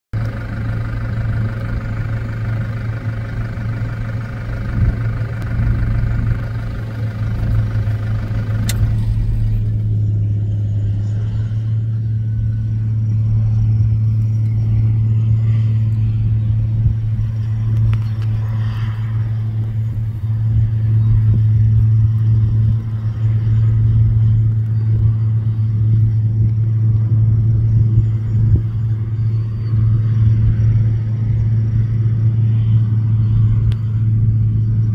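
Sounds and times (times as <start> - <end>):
low engine drone: 0.1 - 34.9
high whine: 0.2 - 34.9
rough low rumble: 0.2 - 34.9
click: 8.6 - 8.9.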